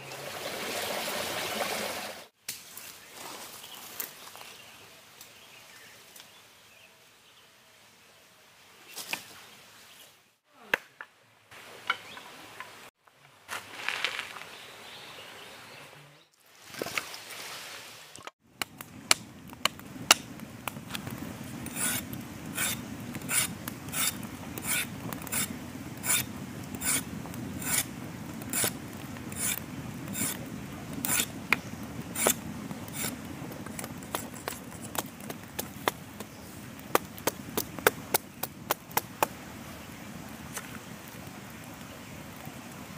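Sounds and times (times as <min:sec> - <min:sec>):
wood fire crackling: 0:18.4 - 0:42.9
knife scraping bamboo: 0:21.6 - 0:27.9, 0:28.5 - 0:30.4, 0:31.0 - 0:31.4, 0:32.1 - 0:36.3.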